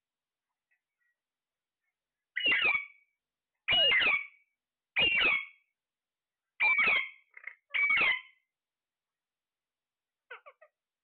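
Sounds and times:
parakeet calling: 0:02.3 - 0:05.7, 0:06.6 - 0:08.5, 0:10.3 - 0:10.8.

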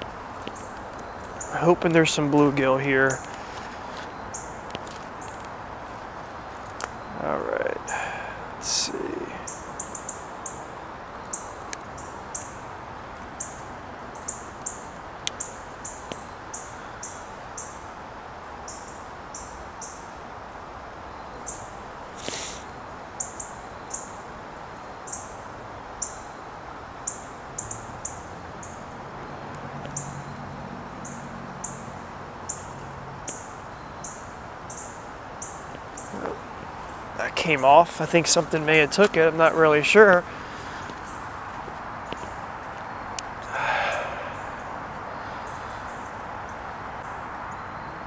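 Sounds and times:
bird chirping: 0:00.0 - 0:05.5, 0:06.7 - 0:12.7, 0:27.0 - 0:41.4, 0:42.0 - 0:48.0
outdoor background hiss: 0:00.0 - 0:48.0
rustle: 0:00.0 - 0:48.0.

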